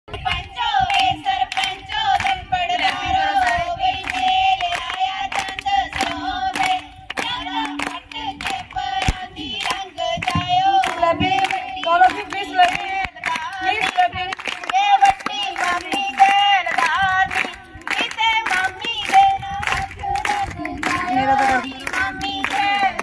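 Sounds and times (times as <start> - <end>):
rhythmic hand clapping: 0.1 - 23.0
women singing together: 0.1 - 23.0.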